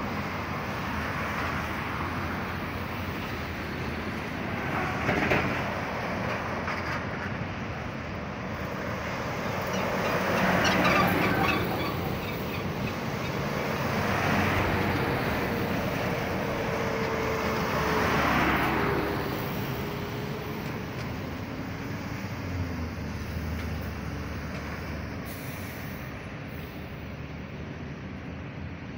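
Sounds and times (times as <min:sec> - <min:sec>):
truck engines passing: 0:00.0 - 0:28.9
tyres on the road: 0:00.0 - 0:28.9.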